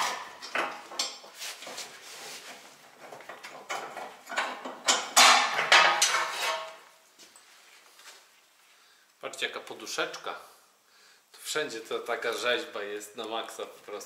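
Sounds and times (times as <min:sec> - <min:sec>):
metal clanks and scraping: 0:00.0 - 0:02.0, 0:02.8 - 0:06.8.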